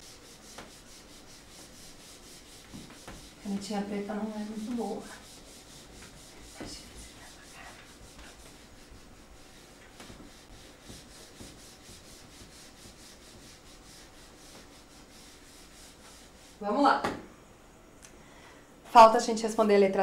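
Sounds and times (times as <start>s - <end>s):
eraser rubbing on whiteboard: 0.0s - 16.6s.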